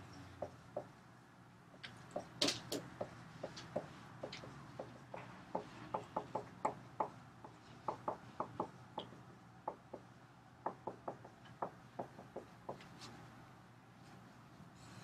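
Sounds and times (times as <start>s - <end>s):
marker tapping on whiteboard: 0.4s - 0.9s, 1.7s - 12.9s.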